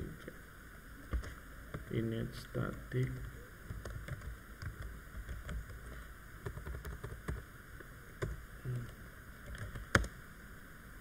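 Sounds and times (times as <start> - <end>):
low background hum: 0.0 - 11.0
keyboard keys clicking: 2.7 - 7.4, 8.2 - 10.1.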